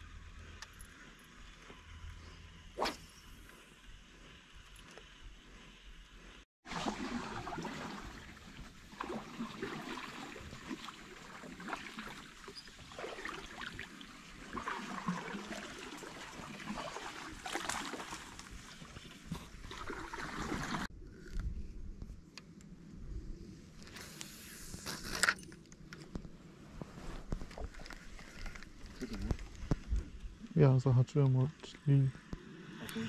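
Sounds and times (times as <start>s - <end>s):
water splashing and sloshing: 2.8s - 20.9s.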